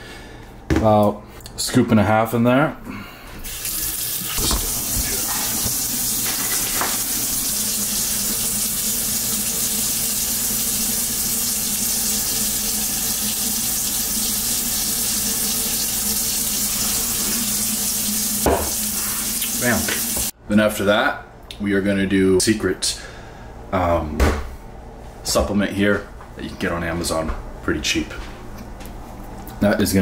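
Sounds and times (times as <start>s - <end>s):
tap water running: 3.4s - 20.3s.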